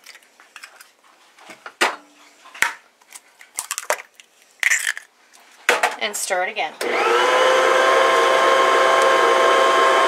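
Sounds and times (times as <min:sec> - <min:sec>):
eggshells cracking: 0:03.4 - 0:05.1.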